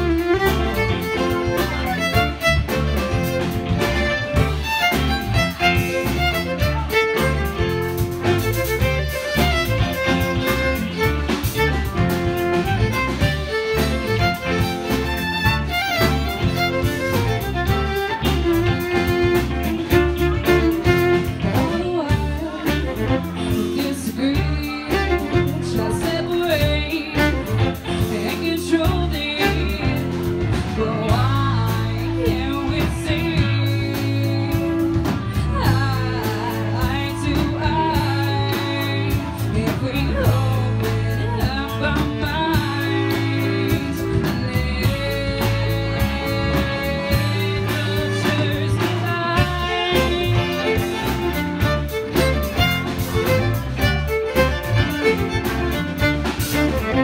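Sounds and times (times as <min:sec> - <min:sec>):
fiddle: 0:00.0 - 0:57.0
live blues-rock band playing: 0:00.0 - 0:57.0
woman singing lead vocal: 0:17.3 - 0:52.3.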